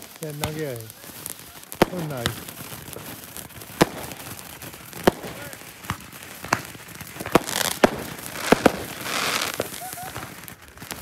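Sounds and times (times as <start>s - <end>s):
firecrackers banging: 0.0s - 11.0s
sparkler crackling fizz: 0.0s - 11.0s.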